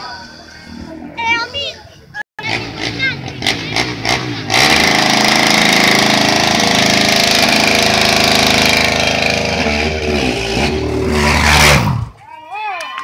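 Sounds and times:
quad bike engine revving: 2.4 - 12.2.

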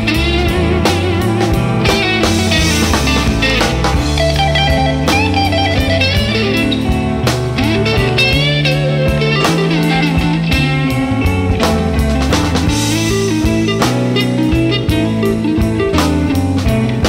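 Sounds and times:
blues-rock electric guitar music: 0.0 - 17.0.

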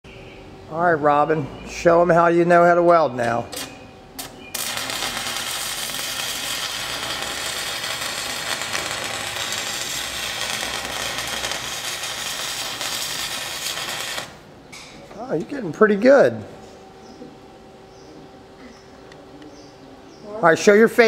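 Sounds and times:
welding arc sizzling and crackling: 3.6 - 14.5.

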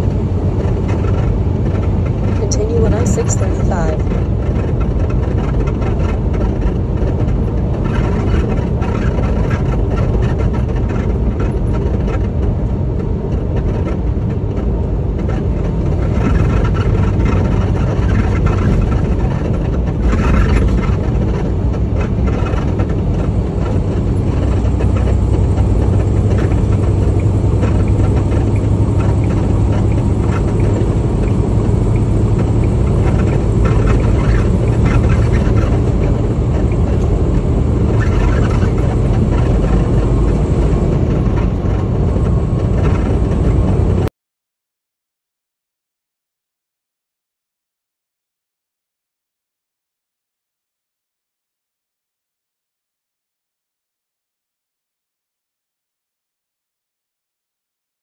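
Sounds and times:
truck engine and road rumble: 0.0 - 44.1.

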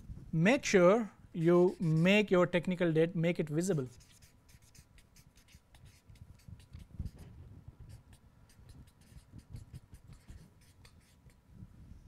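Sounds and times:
marker scratching on paper: 1.4 - 2.3, 3.4 - 11.4.

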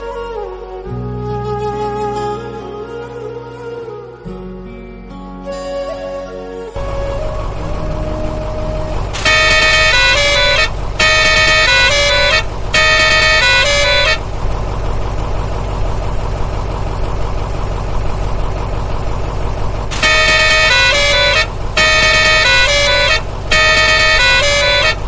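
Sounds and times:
horn-like tone blasts: 6.8 - 14.2, 19.9 - 25.0
steady low hum: 6.8 - 25.0.

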